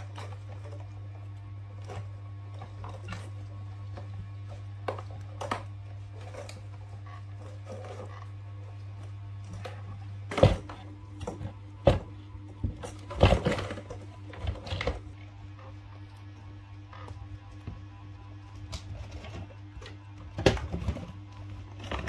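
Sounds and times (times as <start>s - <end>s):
low electrical hum: 0.0s - 22.0s
knocks and clatter of handling: 1.8s - 15.7s.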